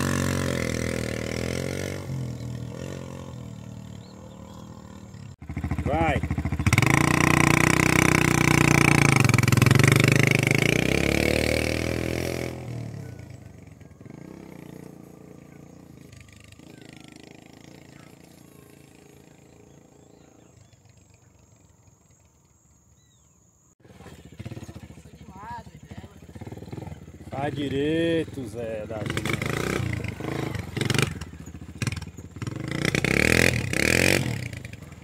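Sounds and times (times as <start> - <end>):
dirt bike engine revving: 0.0 - 22.5, 23.1 - 35.0
engine running close by: 0.0 - 23.2, 23.8 - 35.0.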